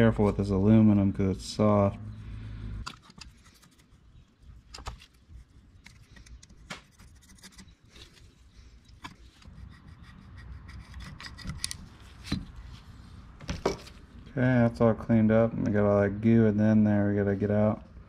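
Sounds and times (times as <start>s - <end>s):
screwdriver scraping metal: 8.9s - 12.0s.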